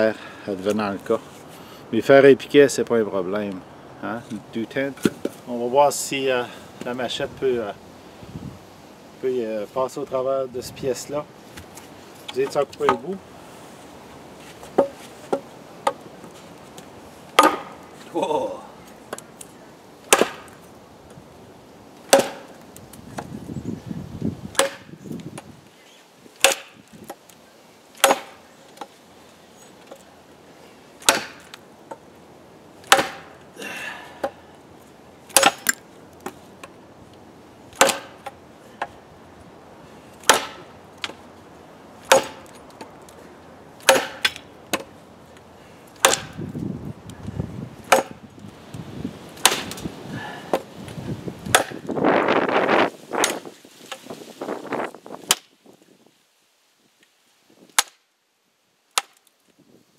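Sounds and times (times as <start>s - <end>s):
machete chopping hard stick: 17.4s - 17.8s, 20.1s - 20.5s, 22.1s - 22.5s, 24.5s - 25.0s, 26.4s - 26.8s, 28.0s - 28.4s, 31.0s - 31.5s, 32.8s - 33.3s, 35.3s - 35.8s, 37.8s - 38.3s, 40.2s - 40.7s, 42.0s - 42.5s, 43.8s - 44.9s, 46.0s - 46.4s, 47.9s - 48.2s, 49.4s - 49.8s, 51.5s - 51.8s.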